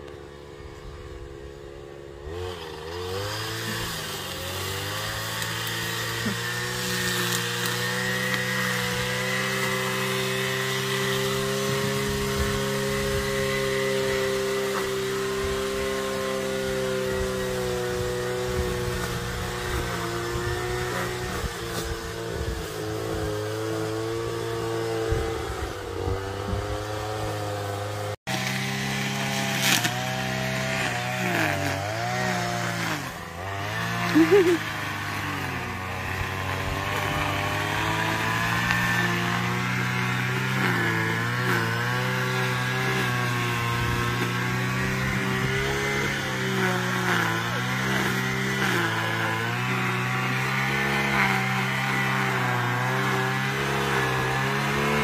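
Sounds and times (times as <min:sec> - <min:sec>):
small engine revving: 0:00.0 - 0:55.0.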